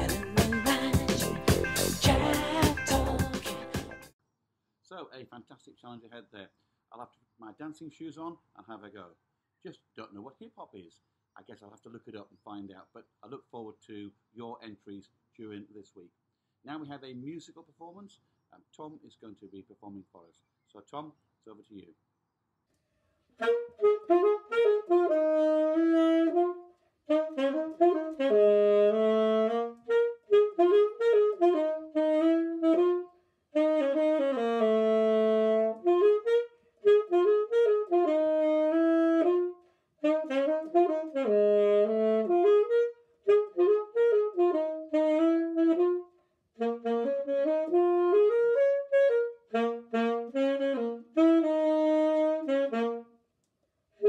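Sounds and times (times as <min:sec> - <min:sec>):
solo alto saxophone melody: 0:00.0 - 0:04.1, 0:23.4 - 0:53.3.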